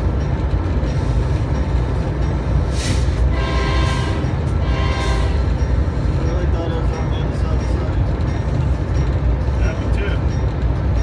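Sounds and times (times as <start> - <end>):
train rumble: 0.0 - 11.0
locomotive horn: 3.1 - 5.6.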